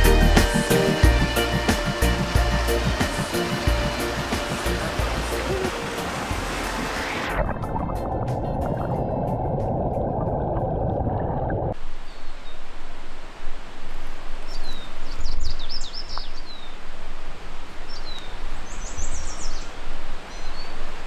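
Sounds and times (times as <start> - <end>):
waterfall rushing: 0.0 - 11.2.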